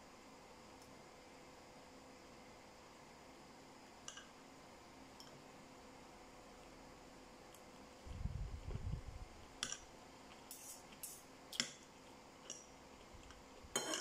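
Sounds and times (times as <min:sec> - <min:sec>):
low muffled rumble: 0:08.1 - 0:09.4
cutlery clinking on plate: 0:13.8 - 0:14.0.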